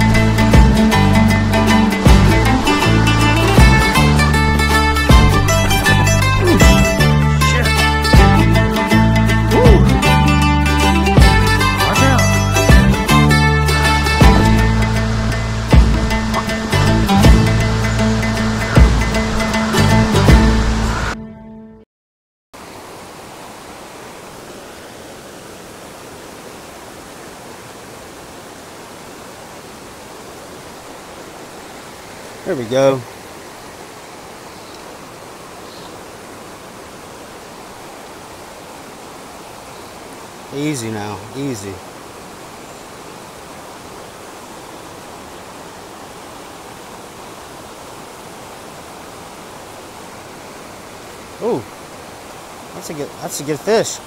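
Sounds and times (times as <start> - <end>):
stream rushing over rocks: 0.0 - 21.2, 22.6 - 54.0.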